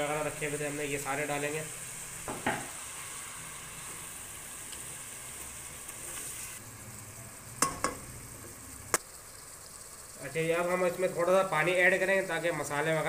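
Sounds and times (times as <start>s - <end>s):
food sizzling in oil: 0.0s - 13.0s
utensil striking pan: 2.2s - 2.8s, 7.6s - 8.1s.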